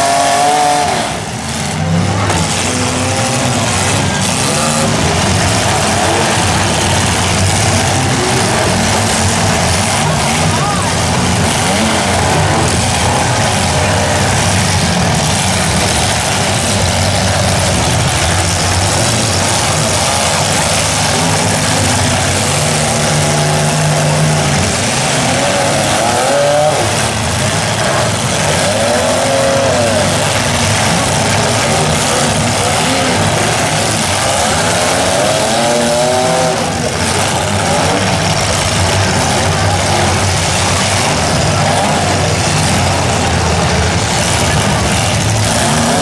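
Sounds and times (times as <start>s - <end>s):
car engines revving: 0.0s - 46.0s.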